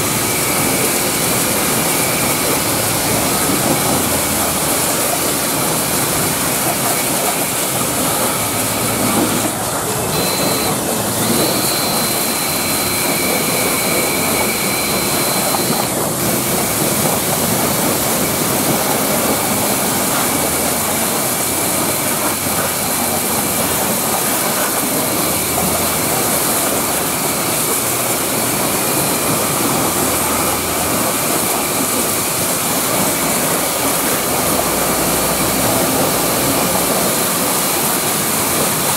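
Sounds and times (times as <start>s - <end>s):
pressure washer spraying water: 0.0s - 38.9s
faint high whine: 6.7s - 16.4s.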